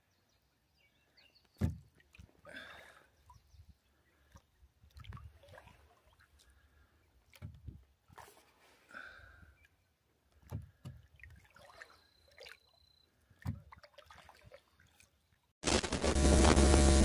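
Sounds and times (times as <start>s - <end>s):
water sloshing around a dinghy: 1.5s - 15.5s
paddle strokes: 7.2s - 8.9s
loud dense burst of sound: 15.6s - 17.0s.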